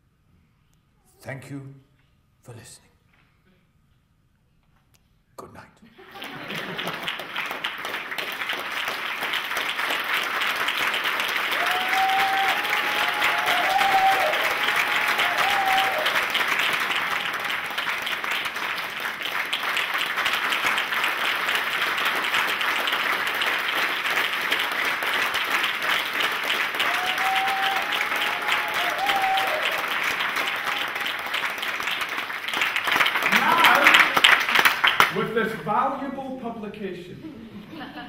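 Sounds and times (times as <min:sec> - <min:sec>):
audience applauding: 0:06.0 - 0:35.3.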